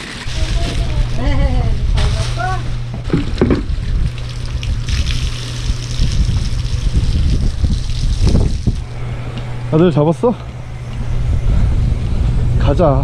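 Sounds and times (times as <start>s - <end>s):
hose water splashing on wooden deck: 1.9s - 9.0s.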